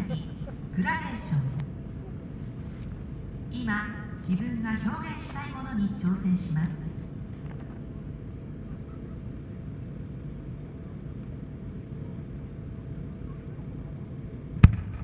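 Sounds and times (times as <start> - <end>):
low outdoor rumble: 0.0 - 15.0
firework mortar boom: 14.6 - 15.0.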